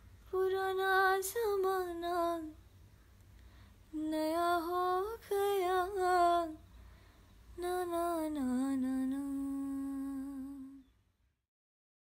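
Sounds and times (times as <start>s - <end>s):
woman humming a slow melody: 7.6s - 10.9s.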